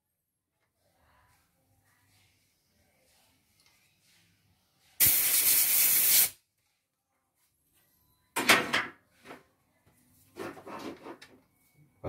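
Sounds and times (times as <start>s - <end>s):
compressed air blow gun hissing: 5.0s - 6.3s.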